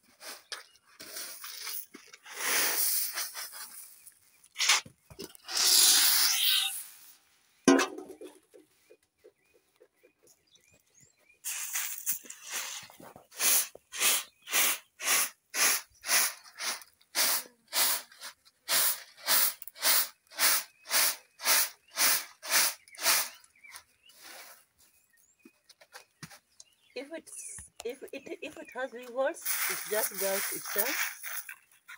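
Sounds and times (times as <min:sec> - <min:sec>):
grains rattling in a basket: 0:00.3 - 0:04.2, 0:11.4 - 0:23.4, 0:29.4 - 0:31.9.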